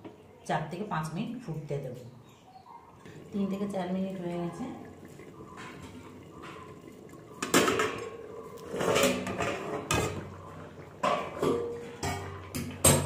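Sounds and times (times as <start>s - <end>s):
metal lid clattering on pot: 7.4s - 10.4s, 11.0s - 13.0s.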